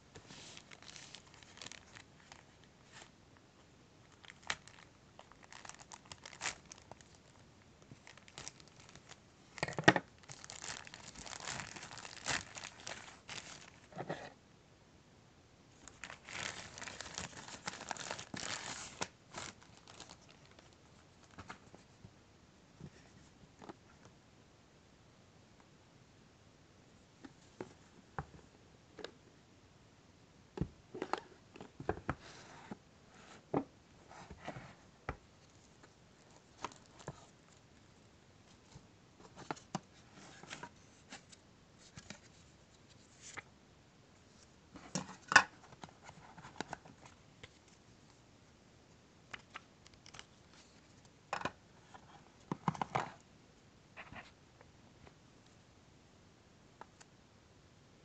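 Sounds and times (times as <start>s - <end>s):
cardboard and plastic rustling: 0.2s - 3.1s, 4.1s - 14.4s, 15.8s - 21.9s, 35.5s - 37.4s.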